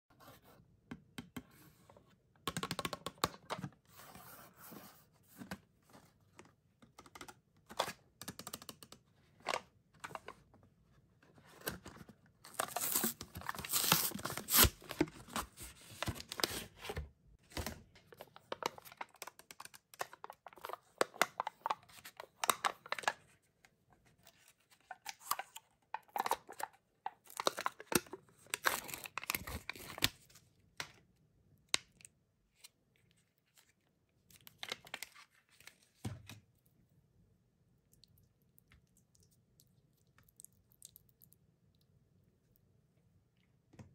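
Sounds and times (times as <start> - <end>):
cardboard tearing: 12.5 - 15.0.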